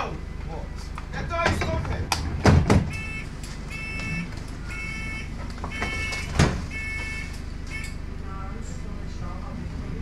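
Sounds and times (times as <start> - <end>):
low hum of bus: 0.0 - 10.0
two-tone door warning beeps: 2.8 - 8.0.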